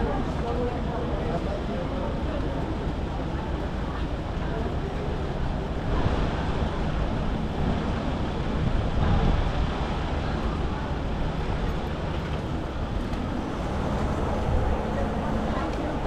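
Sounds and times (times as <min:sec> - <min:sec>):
city traffic noise: 0:00.0 - 0:16.0.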